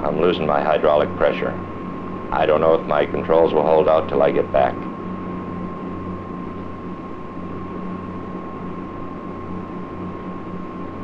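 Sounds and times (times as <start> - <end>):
steady tape hiss: 0.0 - 5.5
low pulsing hum: 0.0 - 11.0.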